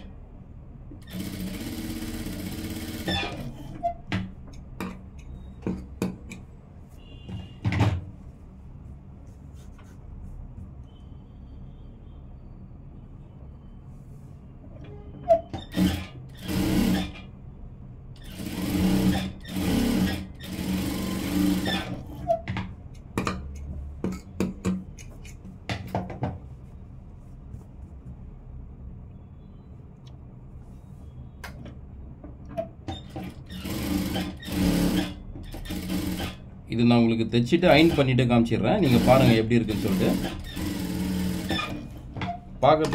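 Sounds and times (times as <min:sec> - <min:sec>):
sewing machine stitching: 0:01.0 - 0:04.0, 0:15.2 - 0:17.3, 0:18.2 - 0:22.4, 0:32.9 - 0:36.5, 0:37.6 - 0:42.1.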